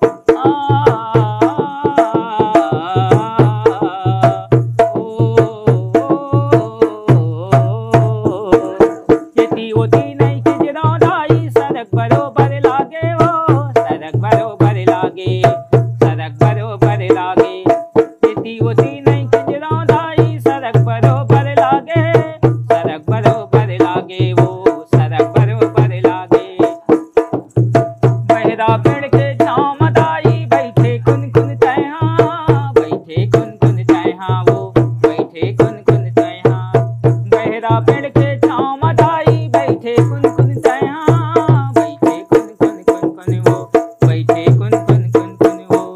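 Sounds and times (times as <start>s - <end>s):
hand drum thumps and slaps: 0.0s - 45.9s
man singing folk song: 0.0s - 45.9s.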